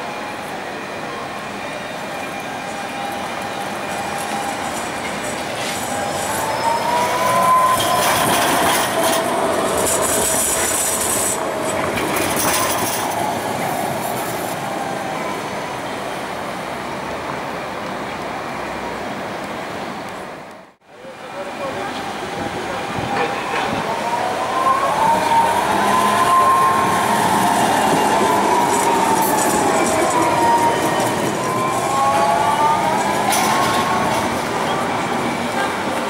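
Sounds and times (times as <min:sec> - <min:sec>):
tram wheels running on rails: 0:00.0 - 0:36.0
high-pitched wheel squeal: 0:02.3 - 0:11.4.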